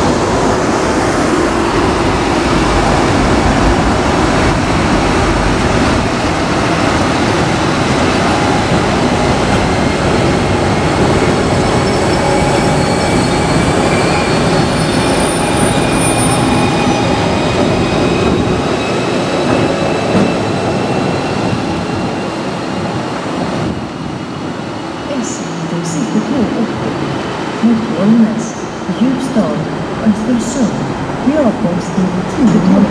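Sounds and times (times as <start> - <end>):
train wheels rumbling on rail: 0.0 - 32.9.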